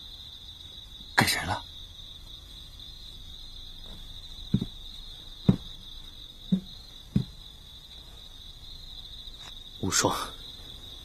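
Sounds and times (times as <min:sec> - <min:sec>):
crickets chirring: 0:00.0 - 0:11.0
footsteps on wooden floorboards: 0:03.8 - 0:07.6.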